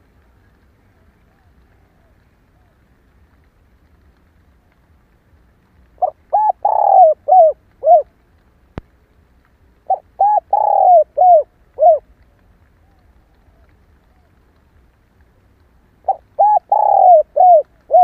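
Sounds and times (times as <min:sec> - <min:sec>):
faint click: 0:00.0 - 0:18.0
dove cooing: 0:06.0 - 0:08.1, 0:09.9 - 0:12.1, 0:16.0 - 0:18.0.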